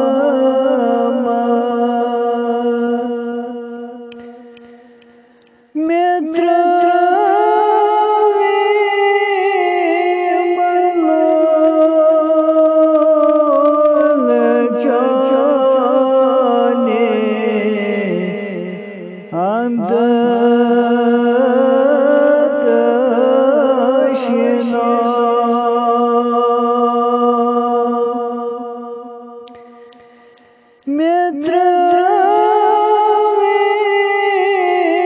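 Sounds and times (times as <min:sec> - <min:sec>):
person singing unaccompanied: 0:00.0 - 0:35.0.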